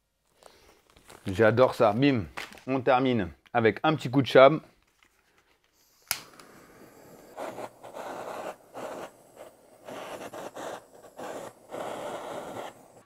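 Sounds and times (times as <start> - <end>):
blowtorch flame hissing: 5.8 - 13.0
blowtorch ignition click: 6.0 - 13.0.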